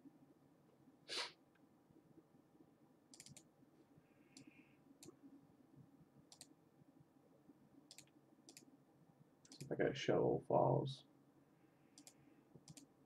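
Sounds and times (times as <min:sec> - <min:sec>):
computer mouse clicks: 0:03.1 - 0:03.5, 0:04.3 - 0:05.2, 0:06.3 - 0:06.6, 0:07.9 - 0:08.7, 0:09.4 - 0:09.7, 0:12.0 - 0:12.9.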